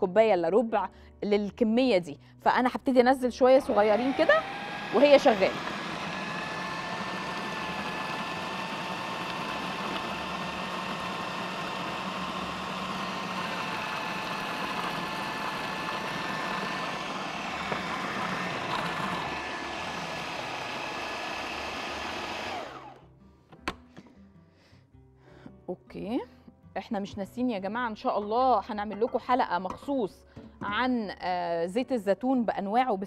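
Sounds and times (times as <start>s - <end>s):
food processor motor whining: 3.6s - 23.0s.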